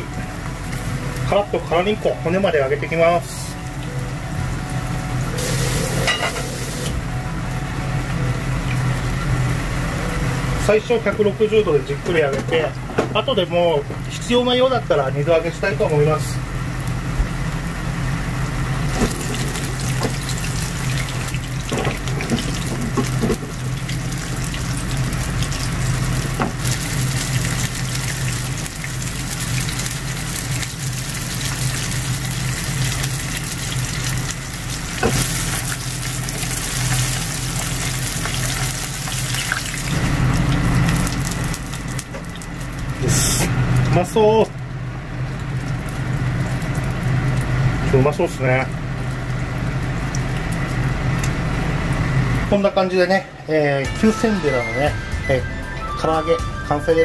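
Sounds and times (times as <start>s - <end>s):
fish sizzling in oil: 0.0s - 11.9s, 13.5s - 52.5s
low hum: 0.0s - 14.1s.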